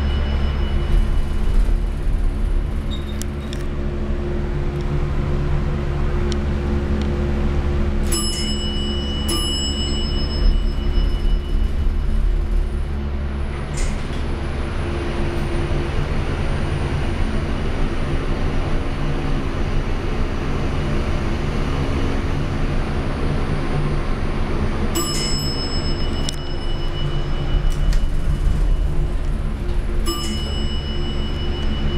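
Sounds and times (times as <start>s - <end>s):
elevator bell strikes: 0.0s - 3.4s, 8.0s - 12.9s, 24.9s - 31.9s
faint high whine: 0.0s - 3.9s, 7.7s - 13.6s, 25.0s - 31.9s
elevator low hum: 0.0s - 31.9s.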